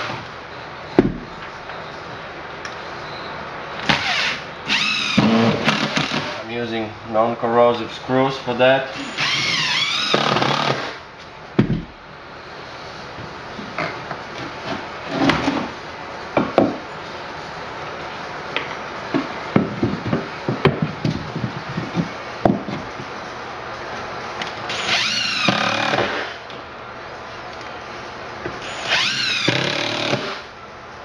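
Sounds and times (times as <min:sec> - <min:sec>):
knocks of wood and screws: 0:01.0 - 0:01.5, 0:11.6 - 0:12.0, 0:19.1 - 0:23.1
cordless drill driving screws: 0:03.8 - 0:06.4, 0:08.9 - 0:11.0, 0:24.7 - 0:26.4, 0:28.6 - 0:30.5.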